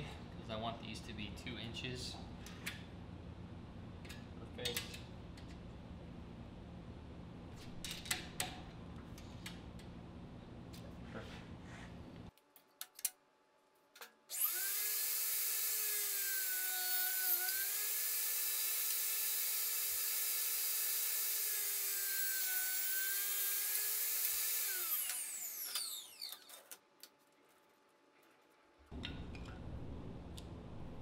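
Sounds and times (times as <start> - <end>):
saw winding down: 14.3 - 26.5
table saw cutting wood: 14.3 - 26.5.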